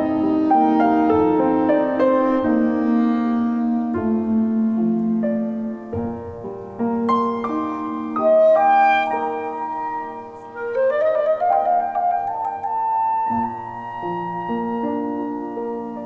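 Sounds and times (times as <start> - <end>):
clarinet: 0.0 - 16.0
grand piano: 0.0 - 16.0.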